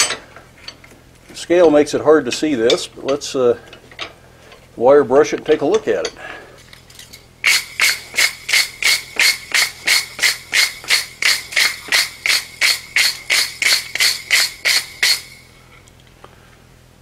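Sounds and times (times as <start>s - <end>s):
steady high metallic ring: 6.9s - 15.7s
wire brush rasping on metal: 7.5s - 15.5s.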